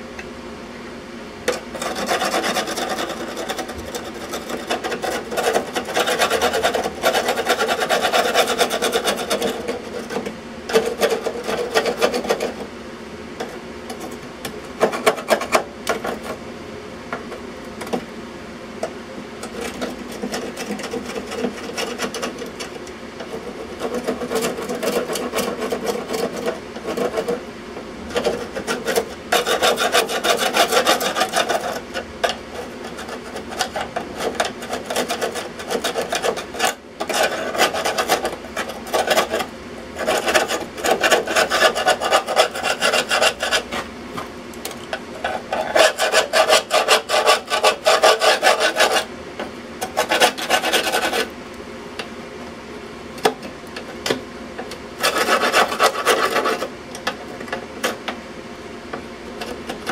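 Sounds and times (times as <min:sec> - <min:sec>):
hand tool scraping rusty metal: 0:01.5 - 0:12.6, 0:19.5 - 0:27.4, 0:28.1 - 0:43.9, 0:45.2 - 0:49.1, 0:49.8 - 0:51.3, 0:55.0 - 0:56.7.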